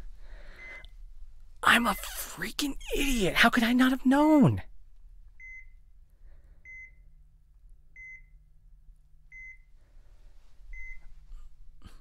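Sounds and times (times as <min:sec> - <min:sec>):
heart monitor beeping: 0:00.6 - 0:00.9, 0:05.4 - 0:05.8, 0:06.6 - 0:07.1, 0:08.0 - 0:08.4, 0:09.3 - 0:09.7, 0:10.7 - 0:11.1.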